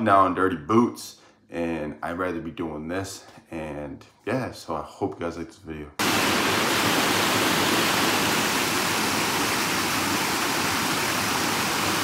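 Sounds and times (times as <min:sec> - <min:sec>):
stream water rushing over rocks: 0:06.0 - 0:12.0.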